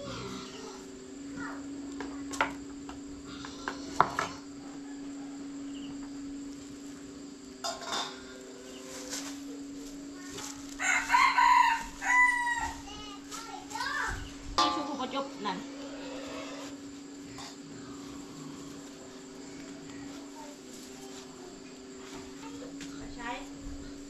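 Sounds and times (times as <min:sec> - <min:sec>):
steady low hum: 0:00.0 - 0:24.0
rooster crowing: 0:03.8 - 0:06.4, 0:08.3 - 0:13.1
bowls and dishes clinking: 0:07.6 - 0:08.4, 0:14.6 - 0:15.8.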